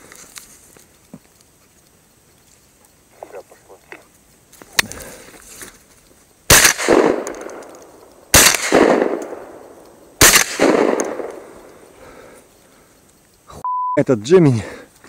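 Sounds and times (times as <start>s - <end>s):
shotgun shots with echo: 6.5s - 7.6s, 8.3s - 9.6s, 10.2s - 11.6s.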